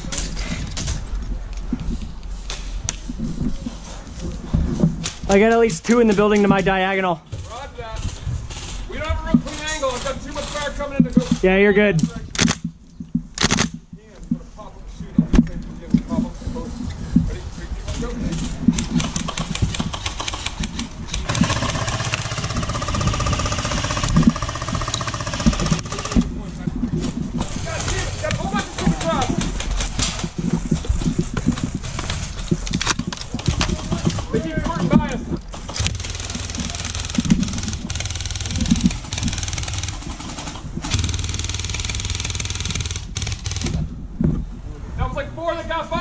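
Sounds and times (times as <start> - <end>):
airsoft gun automatic fire: 12.4 - 12.6, 13.4 - 13.8, 18.9 - 26.3, 35.7 - 43.8.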